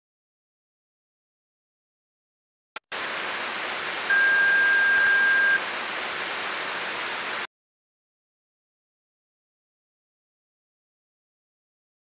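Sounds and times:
steady high beep: 0:04.1 - 0:05.6
tv static hiss: 0:04.1 - 0:05.6.

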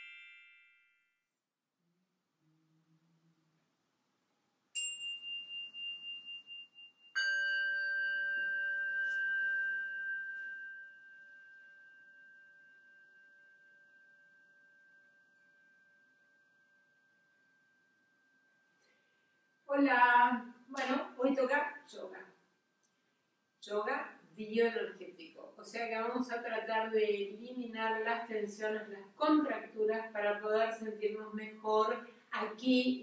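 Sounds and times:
metal bell ringing: 0:00.0 - 0:01.0, 0:04.8 - 0:16.0.

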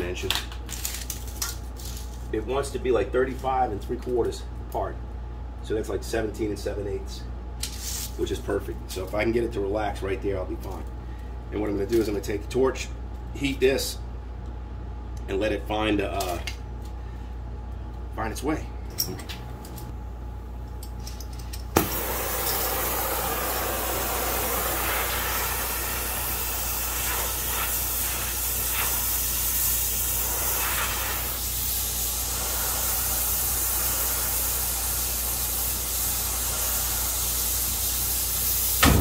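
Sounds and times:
torch lighting pop: 0:21.7 - 0:26.2, 0:38.8 - 0:39.0
torch flame hissing: 0:21.7 - 0:39.0.

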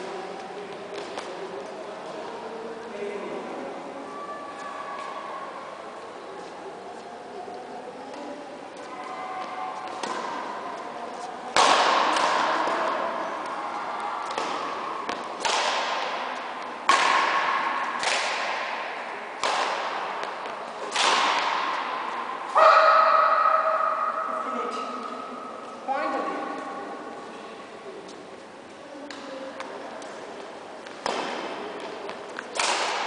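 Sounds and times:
racket striking shuttlecock: 0:09.8 - 0:10.6, 0:11.5 - 0:13.6, 0:14.2 - 0:24.0, 0:30.8 - 0:33.0.

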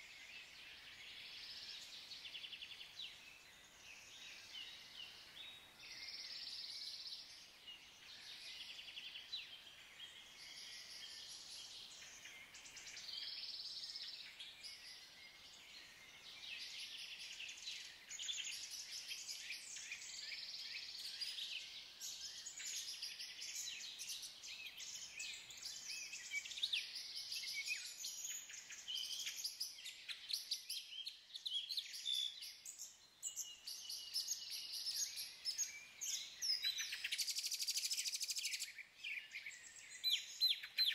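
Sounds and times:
faint background hiss: 0:00.0 - 0:40.9
songbirds chirping and trilling: 0:00.0 - 0:40.9.

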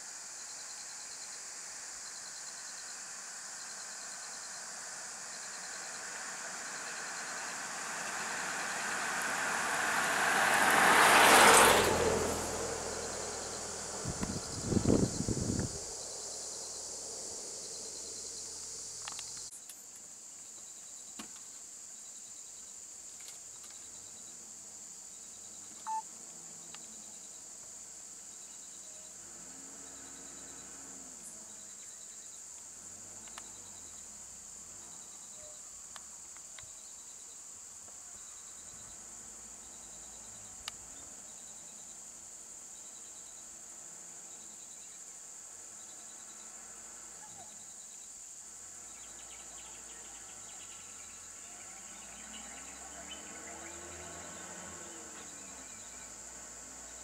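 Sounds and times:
insects chorus: 0:00.0 - 0:57.0
faint regular chirping: 0:25.1 - 0:26.1.

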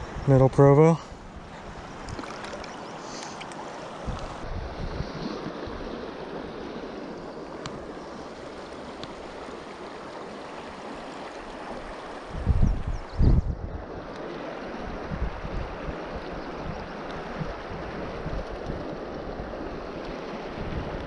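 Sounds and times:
river flowing over rocks: 0:05.7 - 0:12.4.

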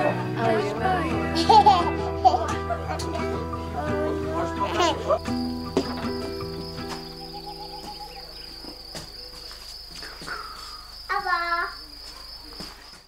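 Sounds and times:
insects chirring: 0:03.4 - 0:13.0
child calling out: 0:11.1 - 0:11.9.

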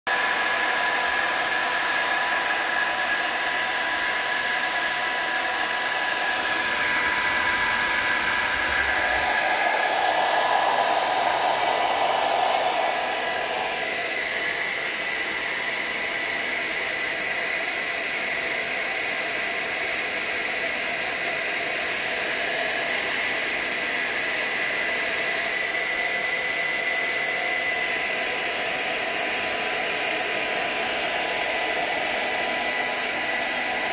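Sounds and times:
electric blower humming: 0:00.6 - 0:16.3
thin motor whine: 0:05.8 - 0:14.8.

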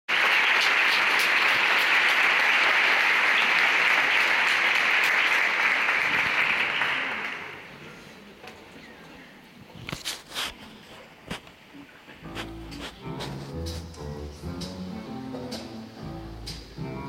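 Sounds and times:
audience applauding: 0:00.1 - 0:07.7.

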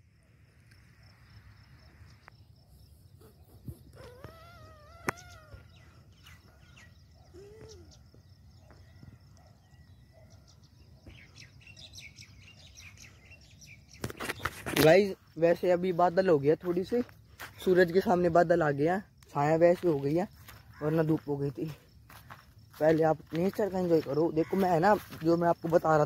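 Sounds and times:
distant animal calls: 0:02.8 - 0:11.7, 0:20.5 - 0:21.2.

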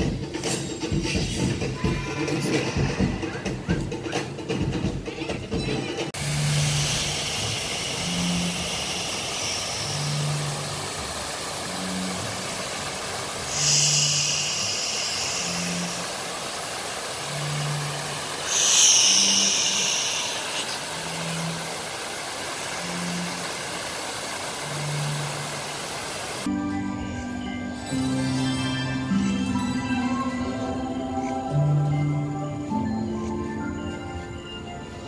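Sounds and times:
waterfall rushing: 0:06.1 - 0:26.5
low pulsing tone: 0:06.2 - 0:13.0
long high-pitched calls: 0:06.3 - 0:12.7, 0:13.4 - 0:23.8.

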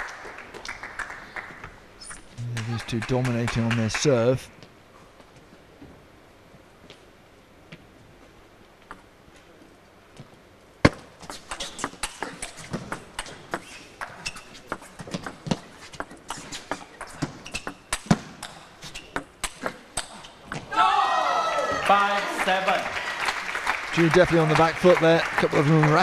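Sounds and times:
ping pong ball hitting rackets: 0:10.9 - 0:16.2.

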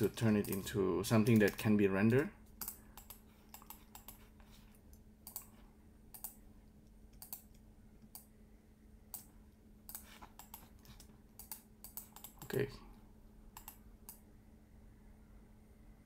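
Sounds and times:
low steady hum: 0:00.0 - 0:16.0
mouse and keyboard clicks: 0:02.6 - 0:04.2, 0:13.6 - 0:14.2.

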